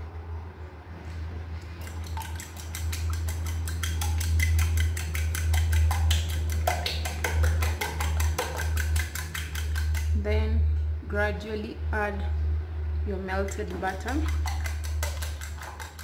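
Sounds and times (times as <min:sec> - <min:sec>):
low hum: 0:00.0 - 0:16.0
fork beating eggs in bowl: 0:01.7 - 0:10.3, 0:13.4 - 0:16.0.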